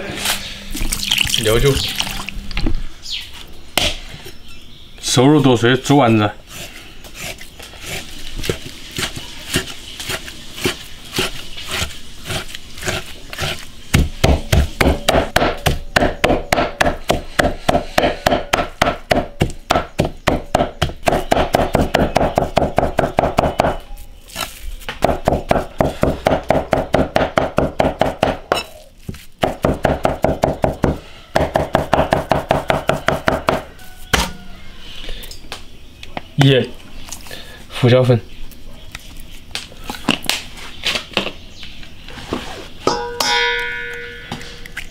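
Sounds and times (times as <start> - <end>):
cleaver chopping on wooden block: 8.4 - 23.8, 24.9 - 34.4.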